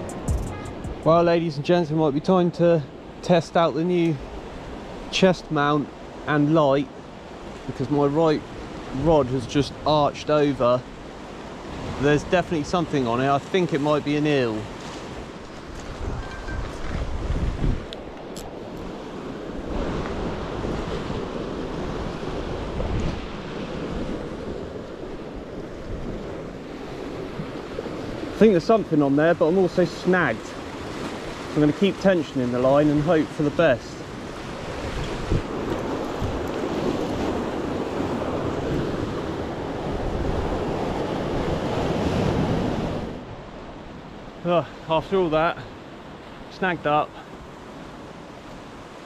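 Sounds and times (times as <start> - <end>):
sea waves washing ashore: 0.0 - 49.0
wind buffeting microphone: 14.7 - 28.4, 34.0 - 44.0.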